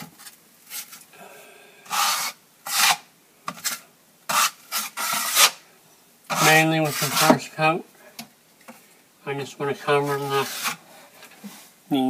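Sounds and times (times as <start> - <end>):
drywall knife scraping wall: 1.9 - 5.6, 6.3 - 7.5, 10.0 - 10.8.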